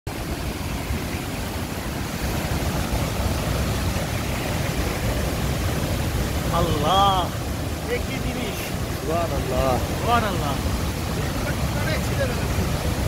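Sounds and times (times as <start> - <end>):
waterfall roaring: 0.1 - 13.0.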